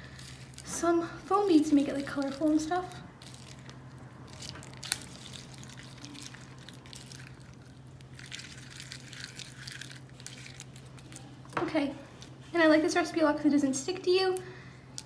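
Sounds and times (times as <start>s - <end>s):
spoon squishing slime: 0.0s - 11.5s.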